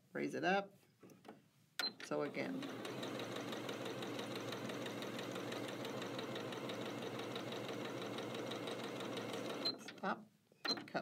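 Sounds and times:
sewing machine stitching: 2.3 - 10.1.

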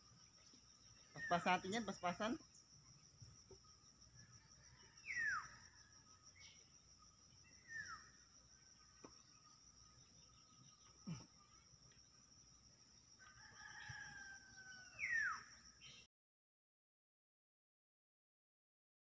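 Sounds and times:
high insect drone: 0.0 - 16.0.

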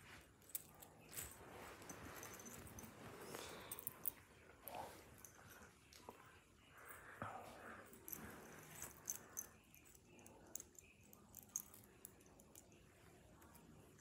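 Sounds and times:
chain necklace clinking: 0.0 - 4.3, 7.8 - 14.0.

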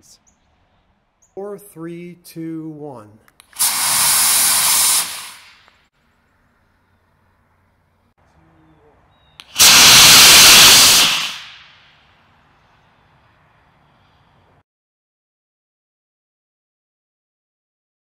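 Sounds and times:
rocket motor hissing: 3.5 - 5.8, 9.4 - 11.8.

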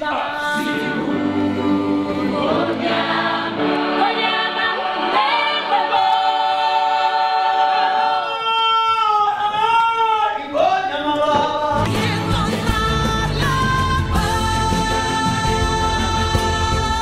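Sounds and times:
choir singing: 0.0 - 8.6.

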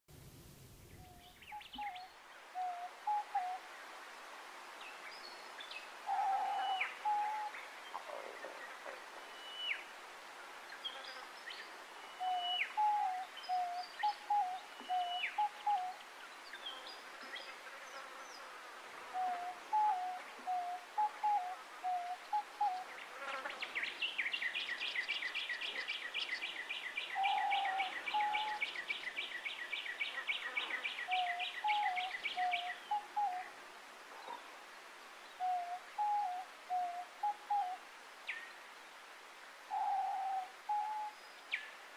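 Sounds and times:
doves cooing: 6.1 - 9.0, 27.2 - 28.7.

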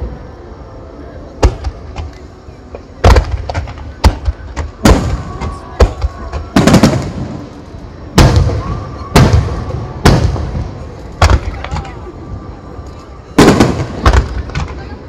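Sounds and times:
firework shells booming: 3.0 - 7.5, 8.2 - 11.9.

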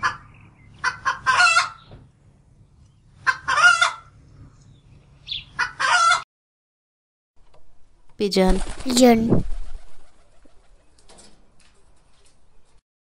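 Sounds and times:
hen cackling: 0.0 - 1.9, 3.2 - 4.2, 5.3 - 6.2.

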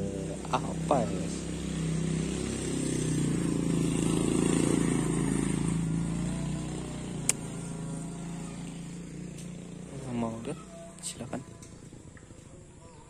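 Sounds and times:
motorcycle engine running: 0.0 - 13.0
sharp click: 7.2 - 7.4.

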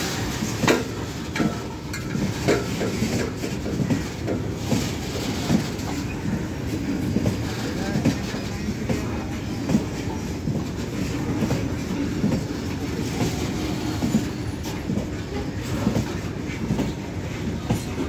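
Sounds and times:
wheels rumbling on rail: 0.0 - 18.0
wheels clacking over rail joints: 0.4 - 6.1.

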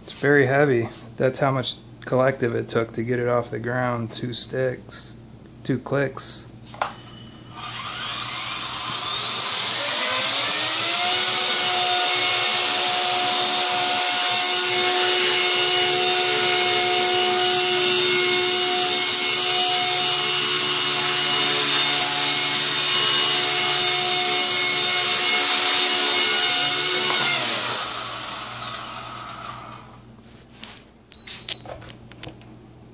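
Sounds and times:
toy helicopter rotor whine: 6.8 - 30.0.

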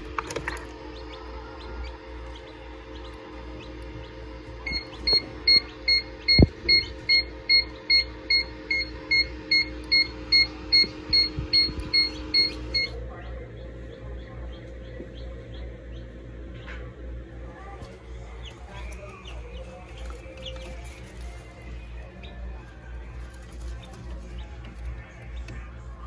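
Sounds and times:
low steady hum: 0.0 - 26.0
electronic beeping: 4.6 - 13.0.

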